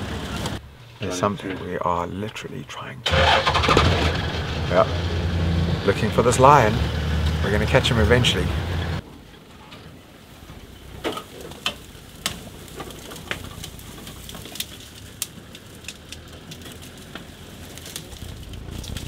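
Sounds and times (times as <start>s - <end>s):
twigs and brush snapping: 11.1s - 19.0s.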